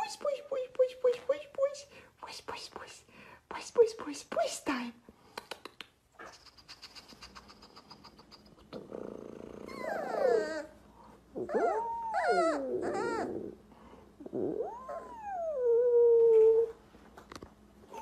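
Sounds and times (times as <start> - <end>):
puppies howling and whining: 9.0 - 16.8.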